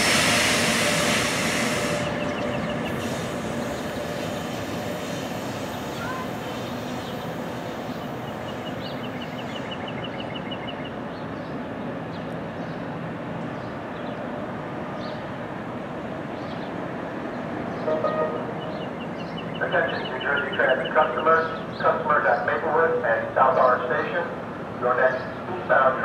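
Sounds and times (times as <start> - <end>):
train wheels on rail: 0.0 - 19.5.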